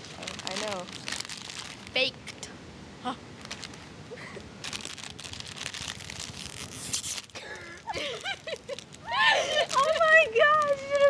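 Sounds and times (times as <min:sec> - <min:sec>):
plastic chip bag crinkling: 0:00.0 - 0:02.1, 0:03.4 - 0:03.9, 0:04.6 - 0:11.0
girl crying out: 0:09.0 - 0:11.0.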